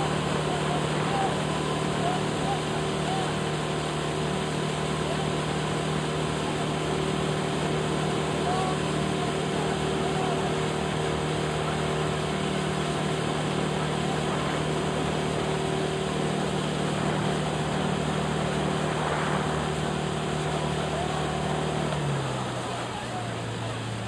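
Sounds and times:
boat engine running: 0.0 - 24.0
rushing noise: 13.1 - 22.7.

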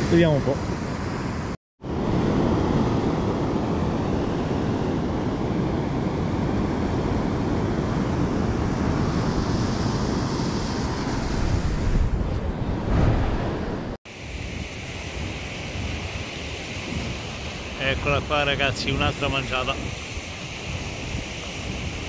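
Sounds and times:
surf washing on beach: 12.8 - 22.0.

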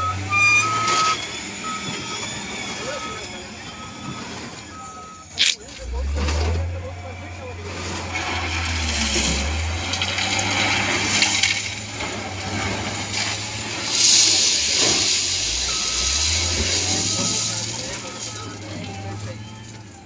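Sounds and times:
diesel engine running: 0.0 - 20.0
bucket crunching loose material: 11.2 - 19.4.

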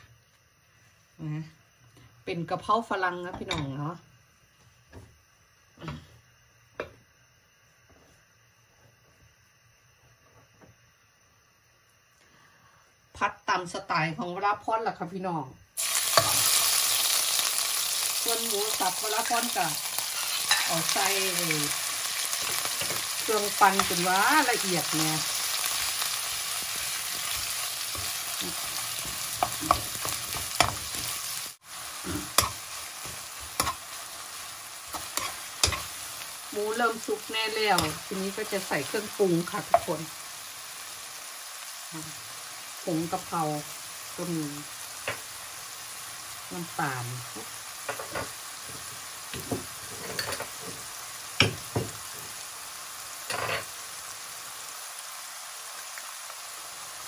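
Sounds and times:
meat sizzling in oil: 15.8 - 57.0.

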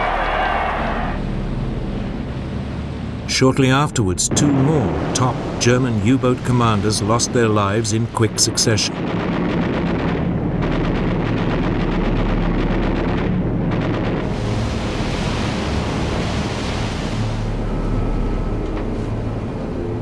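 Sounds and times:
low rumble: 4.2 - 20.0.

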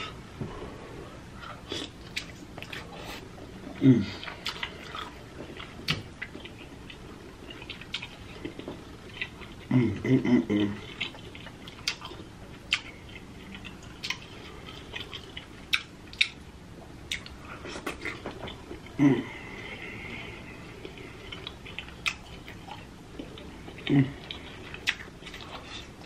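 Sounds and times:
person chewing with lip smacks: 1.4 - 9.7, 10.7 - 16.4, 17.1 - 19.0, 20.7 - 26.0
short vocal sound: 3.8 - 4.3, 19.0 - 19.6.

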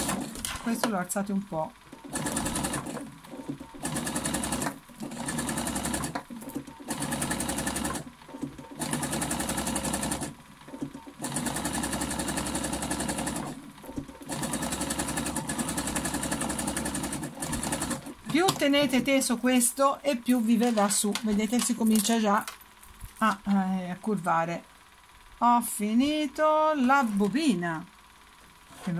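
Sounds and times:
sewing machine stitching: 0.0 - 0.9, 1.9 - 19.1.

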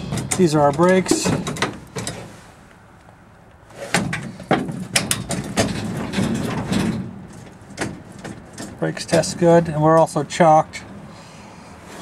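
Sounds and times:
pedal linkage clunks and rattles: 0.0 - 2.3, 3.9 - 9.6.

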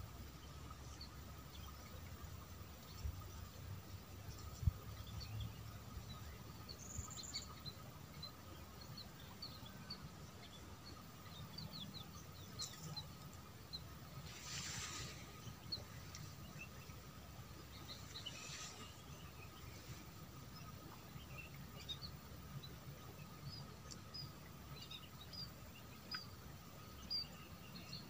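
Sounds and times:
faint steady tone: 0.0 - 28.0
small birds chirping: 0.0 - 28.0
brief hiss: 14.2 - 15.5.

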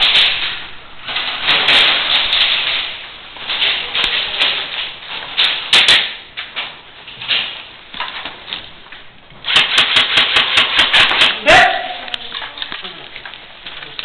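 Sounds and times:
rustling and scuffling movement: 0.0 - 9.6
airsoft gunfire cracks: 9.5 - 11.6
pellets striking plywood: 9.5 - 11.7.

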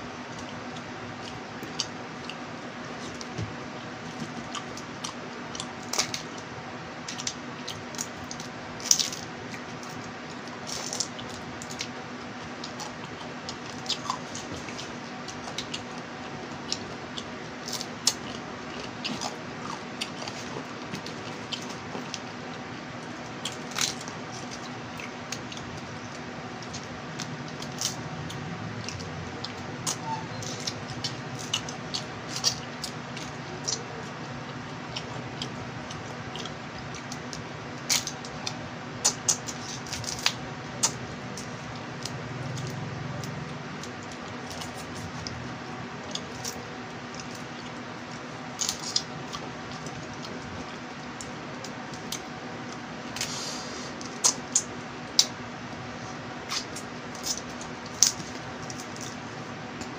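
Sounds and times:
background hiss and hum: 0.0 - 59.9
chewing: 0.3 - 55.4, 56.4 - 59.2
crab shells cracking: 37.0 - 38.4.

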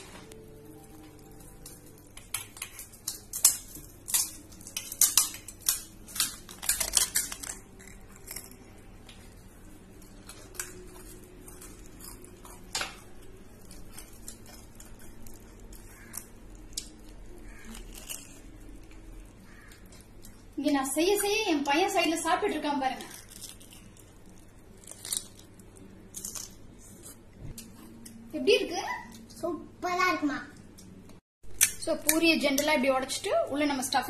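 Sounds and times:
crisp shells cracking: 0.2 - 20.6, 22.8 - 26.8.

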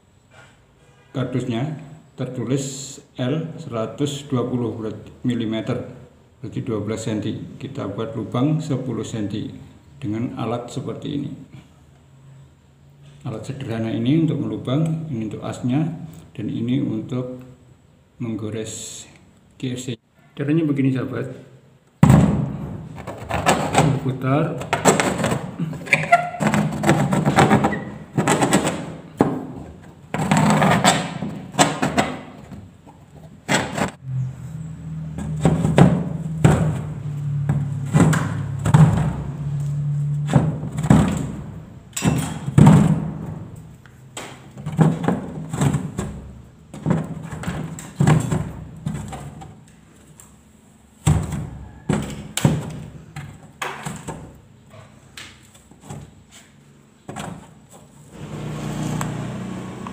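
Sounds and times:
knocks taps and thuds: 35.2 - 39.3.

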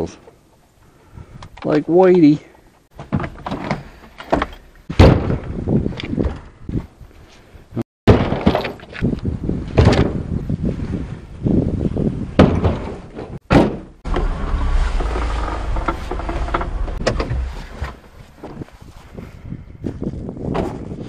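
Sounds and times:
logs thudding into steel truck bed: 3.0 - 5.6, 8.1 - 8.8, 12.4 - 15.0
truck engine rumbling: 13.9 - 18.8.

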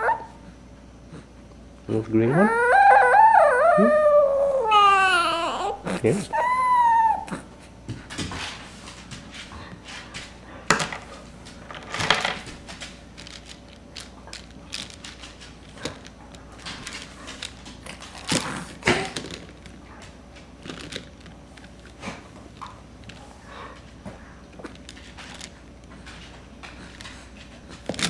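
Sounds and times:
plastic rings clicking and clattering: 13.2 - 19.8.

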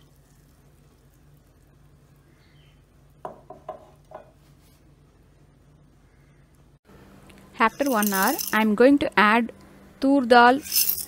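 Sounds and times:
low steady hum: 0.0 - 11.0
glass jar clinking on steel bowls: 7.7 - 8.6, 10.6 - 11.0.

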